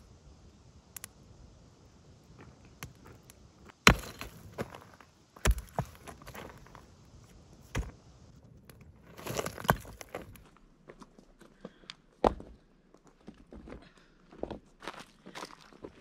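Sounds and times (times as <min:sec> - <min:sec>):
scuffing on gravel: 0:02.4 - 0:08.0, 0:09.0 - 0:11.2
rock knocking on rock: 0:03.8 - 0:06.8, 0:07.7 - 0:08.0, 0:09.1 - 0:10.4.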